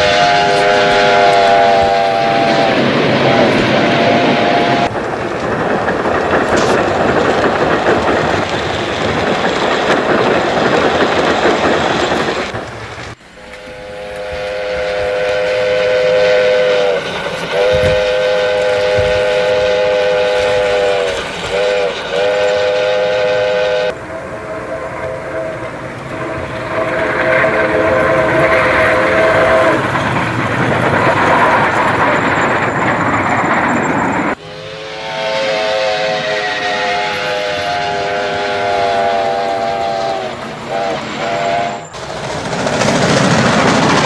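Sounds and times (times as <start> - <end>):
steam whistle blasts: 0.0 - 4.9, 13.5 - 29.8, 34.3 - 42.0
steam locomotive running: 0.0 - 44.0.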